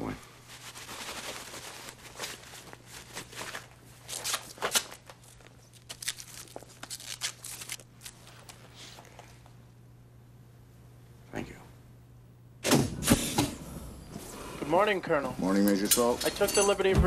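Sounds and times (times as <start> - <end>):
steady low hum: 0.0 - 17.0
plastic suits rustling and swishing: 0.4 - 5.4.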